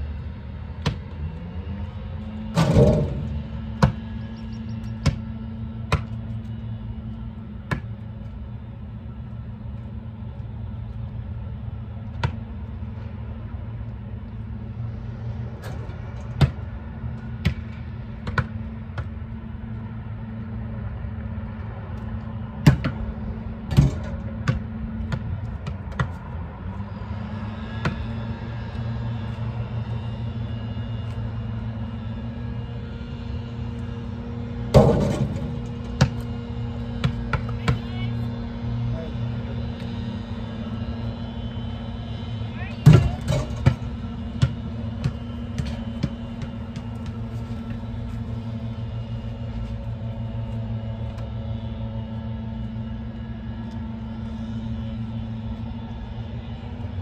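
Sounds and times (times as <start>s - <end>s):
steady low hum: 0.0s - 57.0s
basketballs bouncing on asphalt: 0.7s - 1.2s, 2.6s - 8.3s, 12.0s - 12.6s, 16.2s - 19.9s, 22.6s - 26.4s, 27.8s - 28.0s, 34.8s - 38.3s, 42.6s - 48.9s
ball striking hoop: 2.6s - 4.0s, 34.8s - 36.2s, 42.8s - 47.1s.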